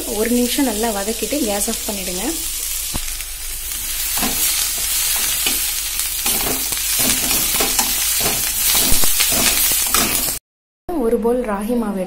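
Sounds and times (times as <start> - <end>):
leaves sizzling in hot oil: 0.0 - 10.4
metal spatula scraping pan: 4.0 - 10.4.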